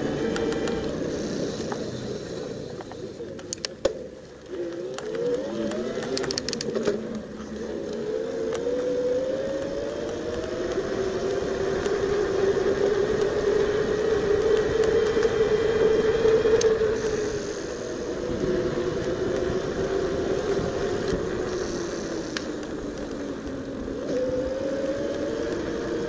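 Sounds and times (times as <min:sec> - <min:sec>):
wind and tyre noise: 0:00.0 - 0:26.0
electric motor whining: 0:04.4 - 0:26.0
quick clicks: 0:04.7 - 0:07.2.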